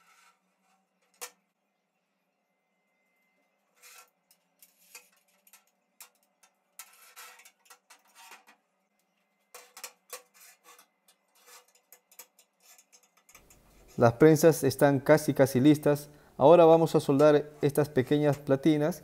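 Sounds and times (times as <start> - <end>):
metal clinks and scrapes: 3.4 - 14.0.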